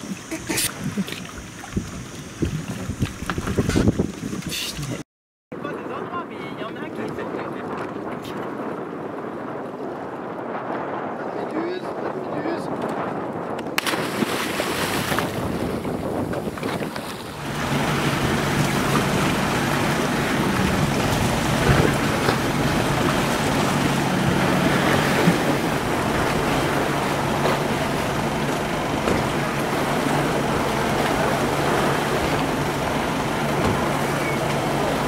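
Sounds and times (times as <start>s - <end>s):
boat engine humming: 0.0s - 5.0s, 13.8s - 35.0s
waves: 0.0s - 5.0s, 5.6s - 35.0s
wind: 0.0s - 35.0s.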